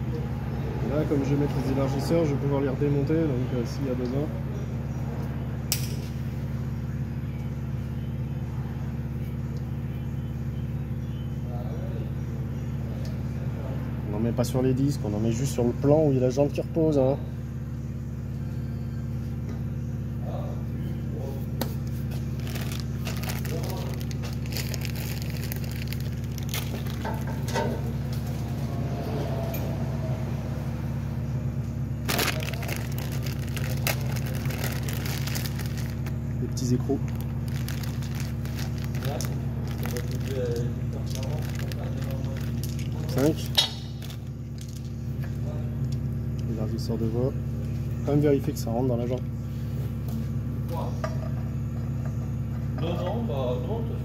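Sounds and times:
low mechanical hum: 0.0 - 54.0
plastic bag crinkling: 22.2 - 27.5, 32.0 - 44.9.

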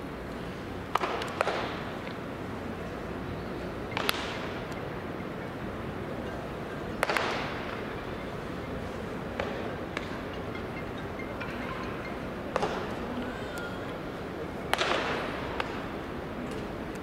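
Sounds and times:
ballpark background hum: 0.0 - 17.0
baseball striking bat or mitt: 0.9 - 2.1, 3.9 - 4.8, 7.0 - 7.8, 14.7 - 15.8.

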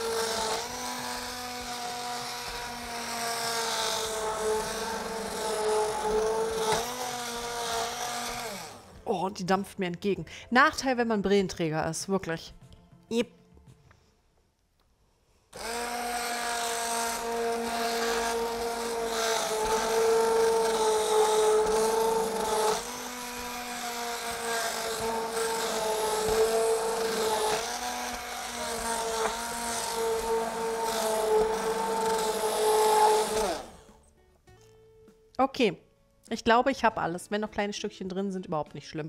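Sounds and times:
immersion blender motor whine: 0.0 - 9.0, 15.6 - 34.0.

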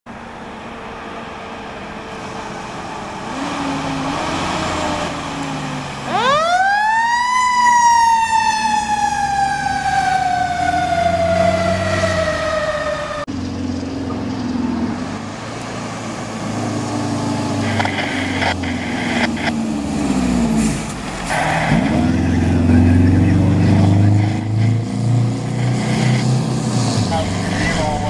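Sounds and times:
mechanical siren wailing: 4.1 - 13.3
diesel engine running: 7.9 - 28.0.

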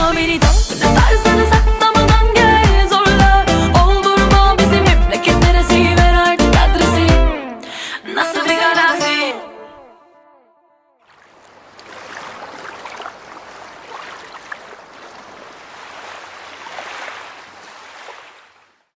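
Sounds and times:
sea water lapping and splashing: 11.0 - 19.0.

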